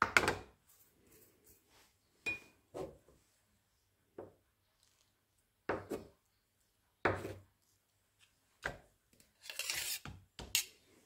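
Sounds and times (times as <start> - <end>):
knife scraping rub: 9.4 - 10.8.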